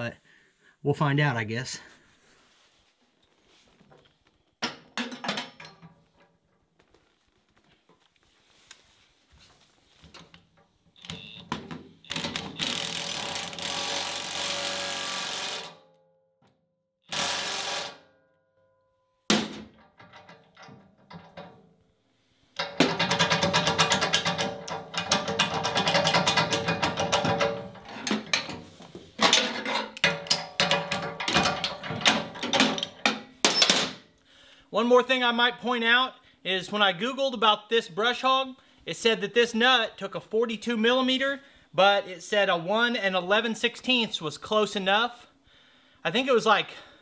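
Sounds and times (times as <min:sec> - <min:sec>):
impact wrench hammering: 0:12.1 - 0:15.8, 0:17.1 - 0:18.0, 0:22.6 - 0:28.5.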